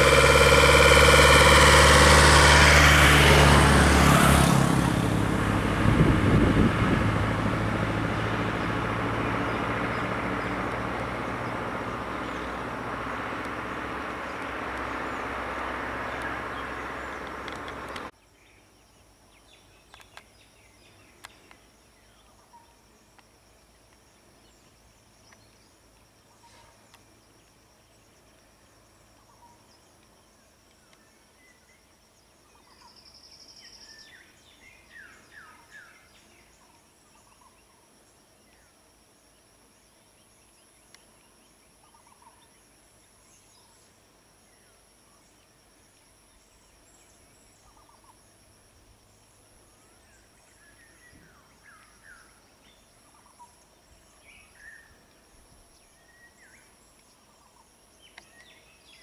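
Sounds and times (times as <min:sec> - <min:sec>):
steady high-pitched whine: 0:00.0 - 0:02.4
birds calling: 0:08.0 - 0:18.1.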